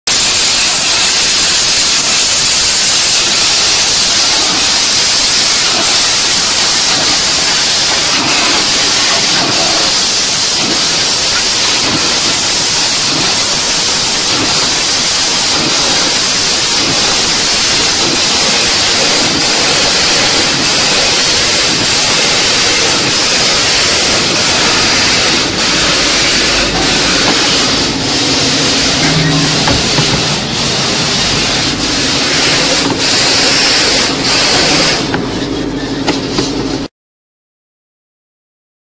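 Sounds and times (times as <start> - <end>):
compressed air jets hissing: 0.1 - 35.2.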